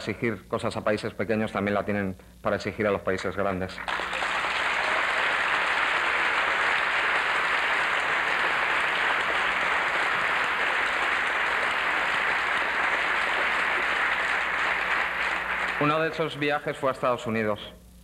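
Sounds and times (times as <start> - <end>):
audience applauding: 3.8 - 16.4.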